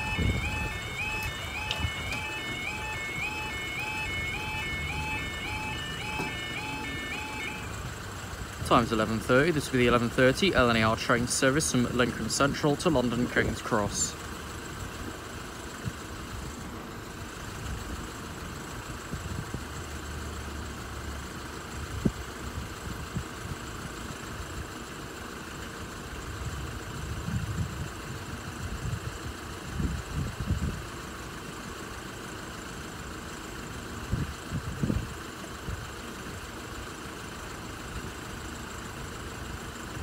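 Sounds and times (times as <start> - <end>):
low rumbles: 0.0 - 12.9
vehicle engines idling: 0.0 - 40.0.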